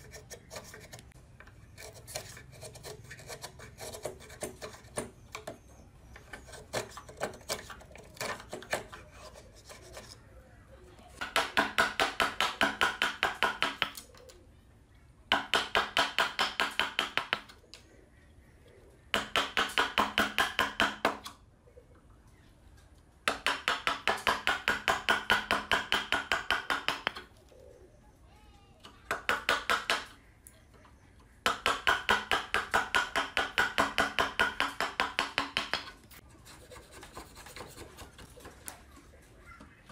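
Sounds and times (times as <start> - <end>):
file rasping on wood: 1.7 - 5.1.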